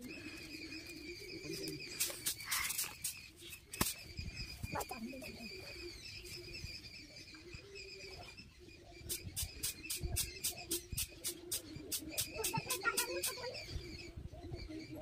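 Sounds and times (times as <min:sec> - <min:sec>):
pigeon cooing: 0:00.0 - 0:03.1, 0:07.3 - 0:15.0.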